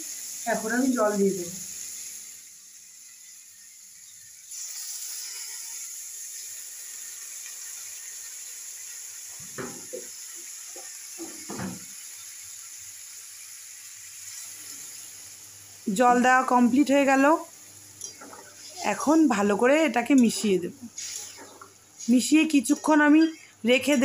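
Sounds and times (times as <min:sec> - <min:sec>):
water pouring into a metal pot: 0:01.6 - 0:14.7.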